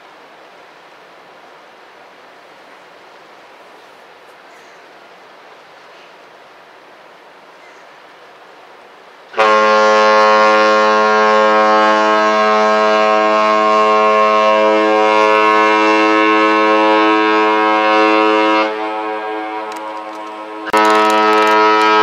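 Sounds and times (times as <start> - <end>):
ship horn long blast: 9.3 - 22.0.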